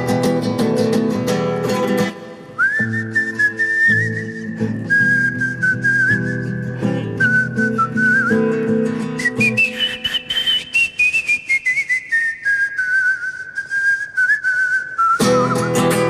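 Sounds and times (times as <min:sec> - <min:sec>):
nylon-string guitar strumming: 0:00.0 - 0:10.4, 0:15.2 - 0:16.0
man whistling a melody: 0:02.5 - 0:16.0.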